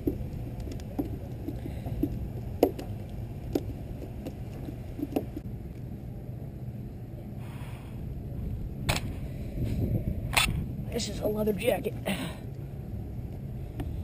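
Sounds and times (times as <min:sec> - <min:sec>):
fish flopping on wooden planks: 0:00.0 - 0:05.4
steady low rumble: 0:00.0 - 0:14.0.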